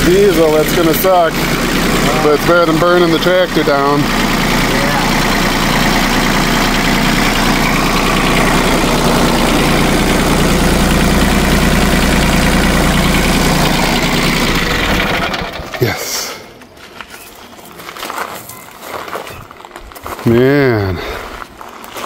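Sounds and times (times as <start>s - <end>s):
tractor diesel engine idling: 0.0s - 16.6s.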